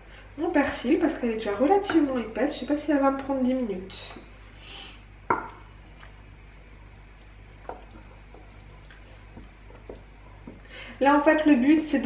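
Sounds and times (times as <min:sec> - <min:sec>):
faint low hum: 0:00.0 - 0:12.0
utensil tapping bowl and pot: 0:01.8 - 0:02.2, 0:05.3 - 0:05.6.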